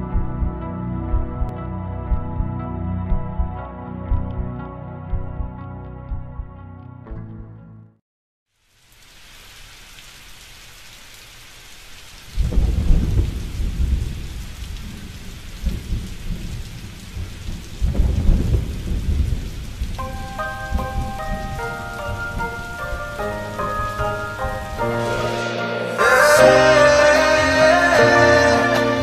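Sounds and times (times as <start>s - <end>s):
steady rain falling: 8.5s - 29.0s
rolls of thunder: 12.4s - 19.9s
soft chiming tune: 20.0s - 26.7s.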